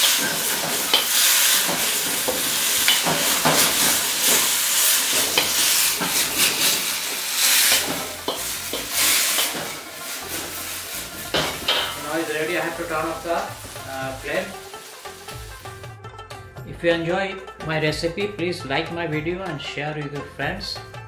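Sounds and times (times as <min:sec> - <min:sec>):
spatula scraping a wok: 0:00.0 - 0:15.8
fries sizzling in a wok: 0:00.0 - 0:15.9.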